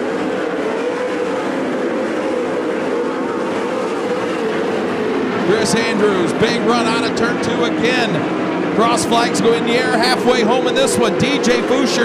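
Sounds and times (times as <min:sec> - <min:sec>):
race car engines droning: 0:00.0 - 0:12.0.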